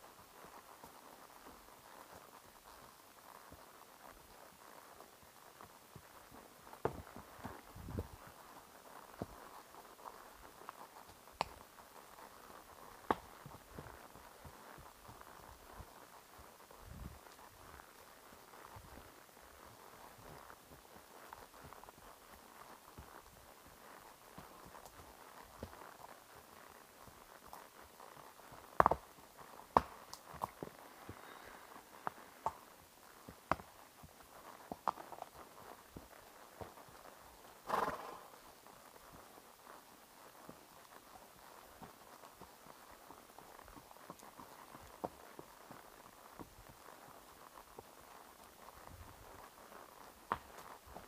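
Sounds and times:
horse hooves walking on trail: 0.0 - 51.0
hoof thuds: 6.7 - 8.3.

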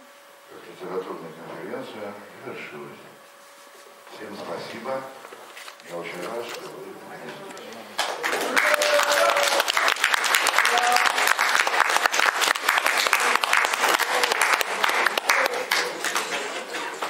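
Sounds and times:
audience applauding: 8.0 - 17.0.

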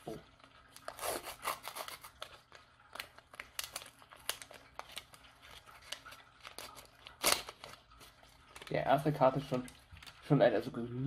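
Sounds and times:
card pack wrapper tearing: 0.7 - 8.8.

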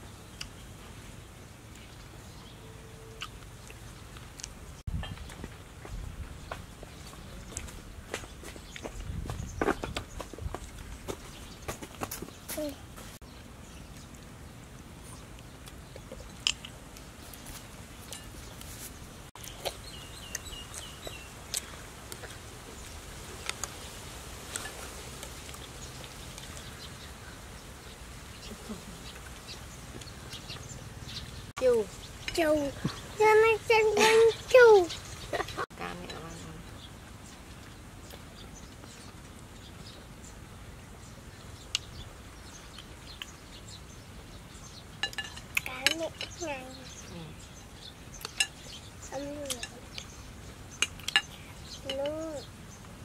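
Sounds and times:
birds chirping: 0.0 - 53.0
spoons clinking against bowls: 45.0 - 46.4.

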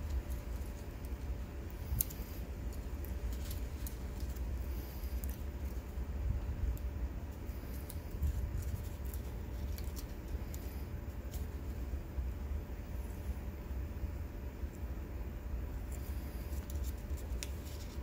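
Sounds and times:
paper rustling: 0.0 - 5.9, 7.5 - 11.7, 15.9 - 18.0
faint hum: 0.0 - 18.0.

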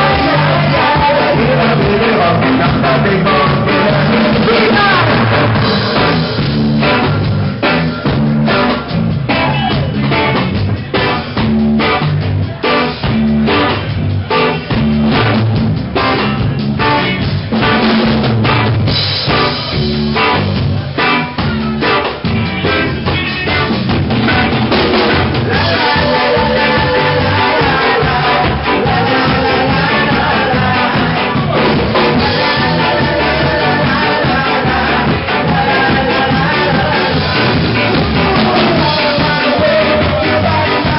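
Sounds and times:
live ska band playing: 0.0 - 40.9
snare and bass drum beat: 14.3 - 40.9.

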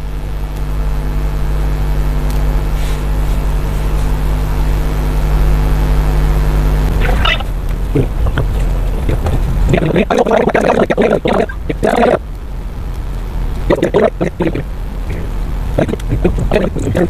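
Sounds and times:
steady low hum: 0.0 - 17.0
voice: 6.9 - 12.2, 13.6 - 17.0.

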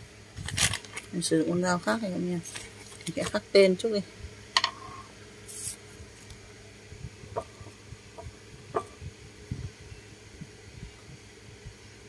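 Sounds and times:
plastic bag rustling: 0.4 - 1.2, 2.4 - 3.4, 5.5 - 6.3.

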